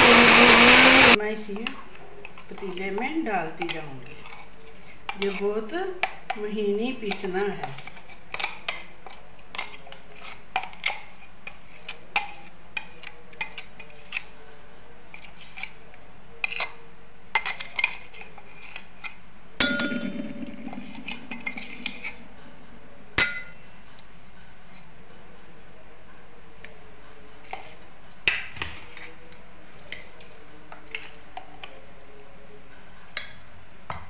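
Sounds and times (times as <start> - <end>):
metal spoon scraping a pot: 3.6 - 5.6
metal clang with ringing: 19.6 - 22.4, 23.2 - 23.6.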